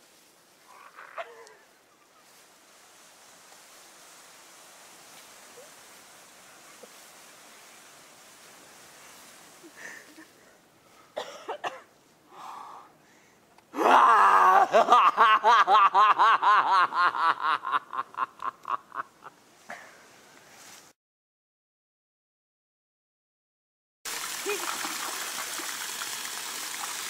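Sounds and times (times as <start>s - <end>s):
person laughing: 13.8s - 19.3s.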